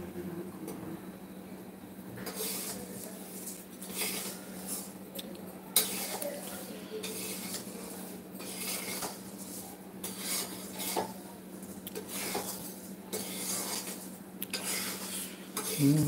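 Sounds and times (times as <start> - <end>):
ladle scraping metal pan: 10.0 - 11.1.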